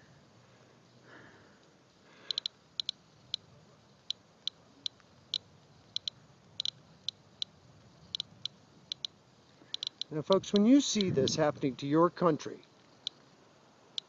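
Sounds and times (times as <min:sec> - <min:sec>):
geiger counter clicking: 0:02.3 - 0:07.5, 0:08.1 - 0:11.2.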